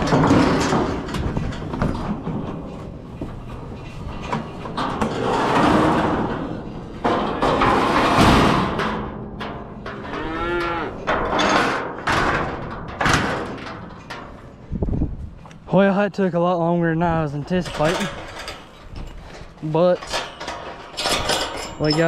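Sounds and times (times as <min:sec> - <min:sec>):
young bull bawling: 0:10.0 - 0:11.1.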